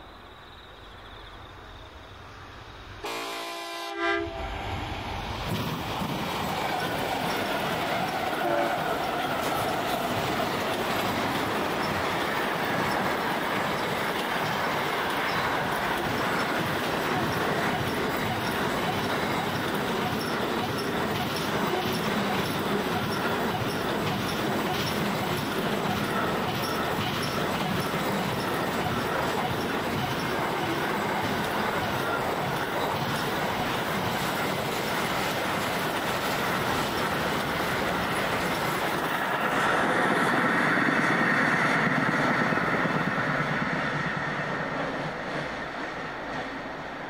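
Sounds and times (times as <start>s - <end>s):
train rumbling: 0.0s - 47.0s
locomotive horn: 3.0s - 4.6s, 8.4s - 8.8s.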